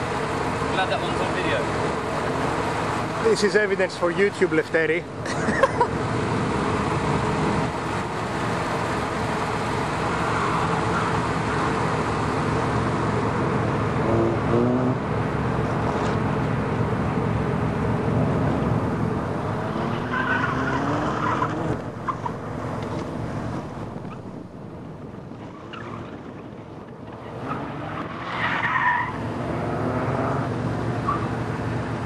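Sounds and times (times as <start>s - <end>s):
tyres skidding on tarmac: 0.0s - 32.0s
car engine revving hard: 13.9s - 15.2s, 18.0s - 21.8s, 27.3s - 31.2s.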